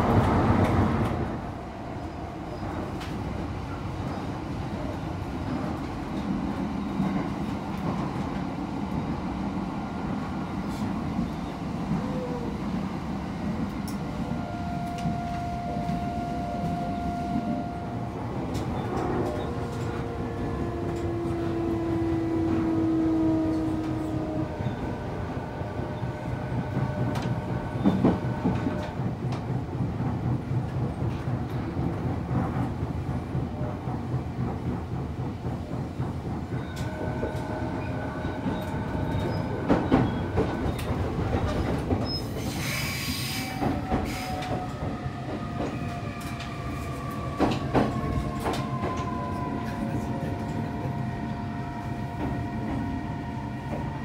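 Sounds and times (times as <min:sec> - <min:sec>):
train inverter whine: 0:00.0 - 0:33.2, 0:34.4 - 0:54.0
wheels rumbling on rail: 0:00.0 - 0:54.0
rail-joint clacks: 0:17.3 - 0:22.8, 0:26.1 - 0:50.9.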